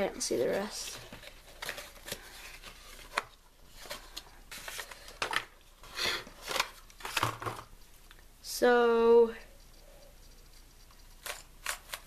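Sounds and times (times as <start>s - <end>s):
rustling: 0.4s - 8.1s.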